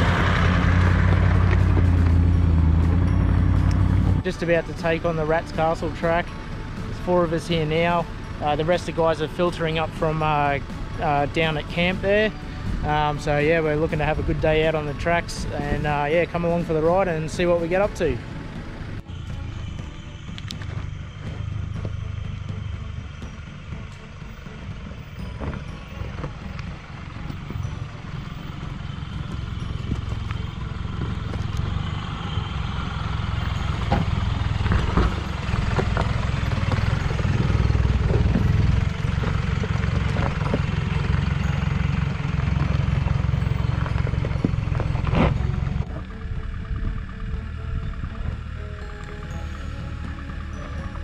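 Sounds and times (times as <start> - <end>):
car engine labouring: 0.0 - 51.0
tyres crunching over rocks: 23.8 - 47.4.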